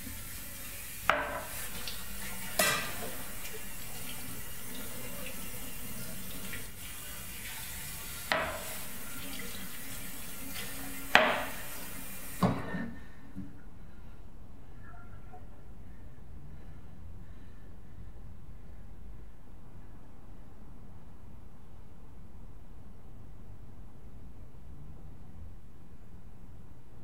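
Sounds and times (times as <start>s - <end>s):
tap running into sink: 1.1s - 5.4s, 8.1s - 12.7s
dishes clinking: 2.4s - 3.3s, 8.3s - 8.9s.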